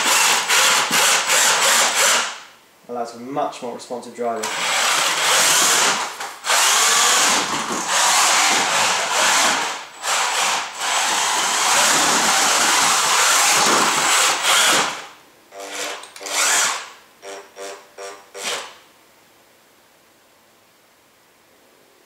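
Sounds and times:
electric motors whining: 0:04.4 - 0:18.7.

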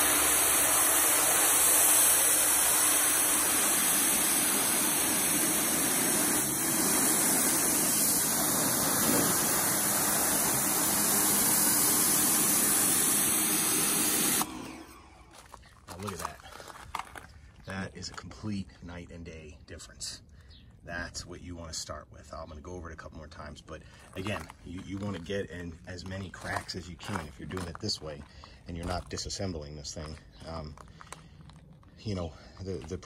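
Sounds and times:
pressure washer spraying: 0:00.0 - 0:15.4.

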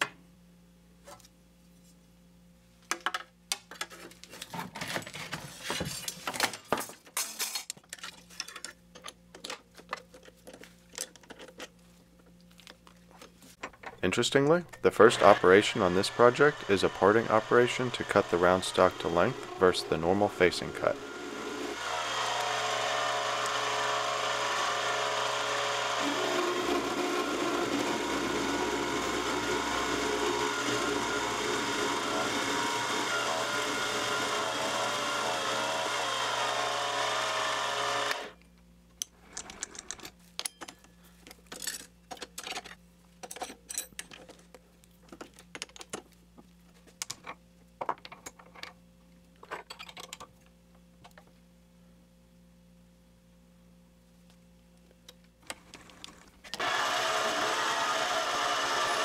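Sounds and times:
lathe motor and gears whining: 0:14.4 - 0:38.4, 0:56.5 - 0:59.0
parting tool cutting aluminum: 0:14.7 - 0:38.4, 0:56.5 - 0:59.0.

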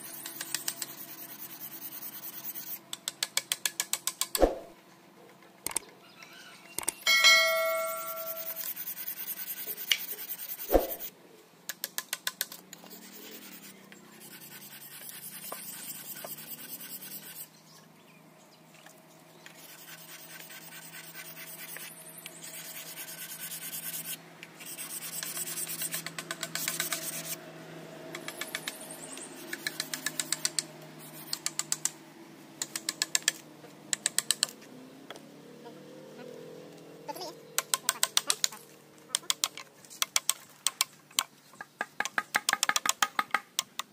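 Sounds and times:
metallic clink: 0:07.1 - 0:08.6
hand tool rasping wood: 0:07.8 - 0:11.0, 0:22.5 - 0:27.4.

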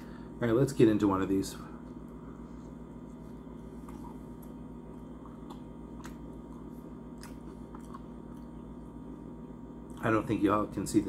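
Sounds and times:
low electrical hum: 0:00.0 - 0:11.0
person chewing: 0:02.6 - 0:09.1.

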